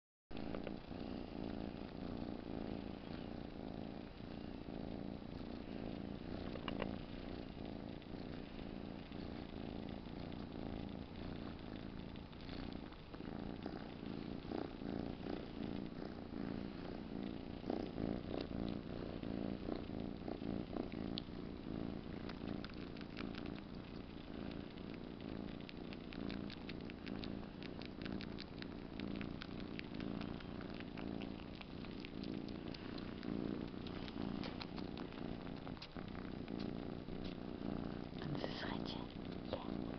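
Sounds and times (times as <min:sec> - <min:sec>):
kitten purring: 0:00.3 - 0:39.9
faint sucking clicks: 0:36.6 - 0:37.4.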